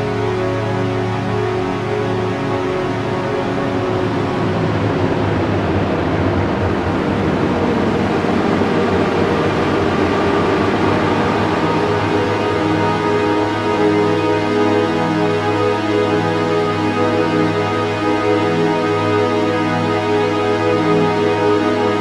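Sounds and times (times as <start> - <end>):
music of long held tones: 0.0 - 22.0
steady wash of noise: 3.7 - 14.2.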